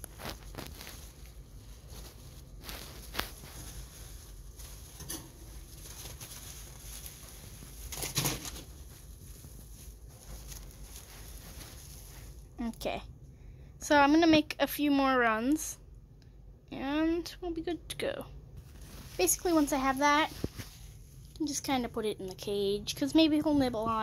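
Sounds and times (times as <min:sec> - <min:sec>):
dry hay rustling: 0:00.0 - 0:12.8, 0:18.6 - 0:21.2
low steady hum: 0:00.0 - 0:24.0.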